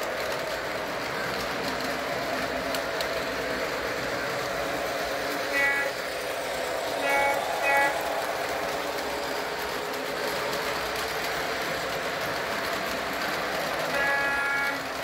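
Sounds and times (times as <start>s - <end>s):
model train rolling on track: 0.0s - 15.0s
locomotive horn blast: 5.5s - 6.0s, 13.9s - 15.0s.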